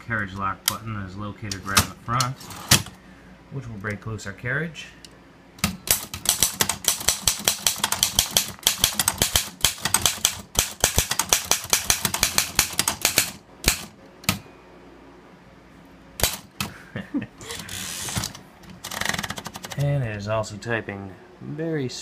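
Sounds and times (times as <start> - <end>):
typewriter key strikes: 5.6 - 14.4.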